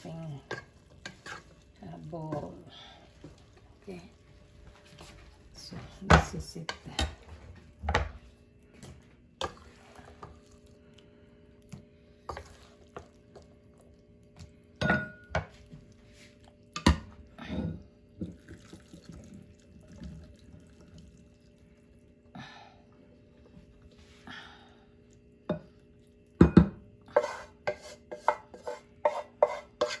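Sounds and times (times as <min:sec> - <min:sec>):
wet food sliding: 0:00.2 - 0:05.6, 0:08.6 - 0:14.6.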